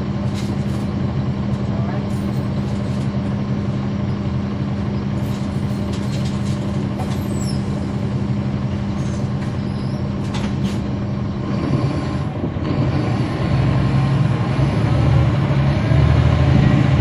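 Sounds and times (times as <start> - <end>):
bus diesel engine droning: 0.0 - 17.0.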